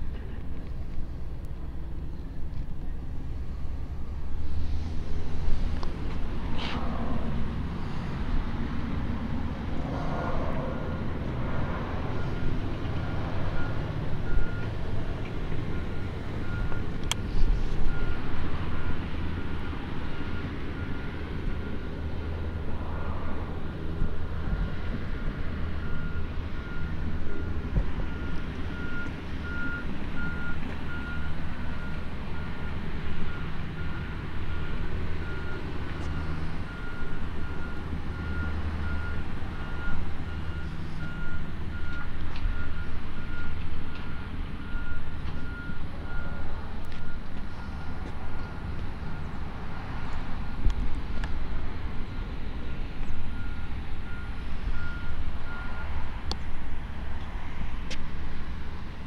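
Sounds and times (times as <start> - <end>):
low engine rumble: 0.0 - 59.0
reversing alarm beeping: 9.2 - 50.1, 52.0 - 56.1.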